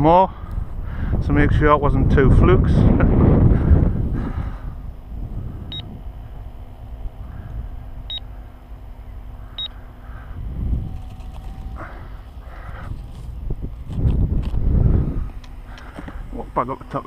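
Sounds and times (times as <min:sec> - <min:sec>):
wind rumbling on microphone: 0:00.0 - 0:16.4
short electronic beeps: 0:05.7 - 0:05.9, 0:09.6 - 0:09.8.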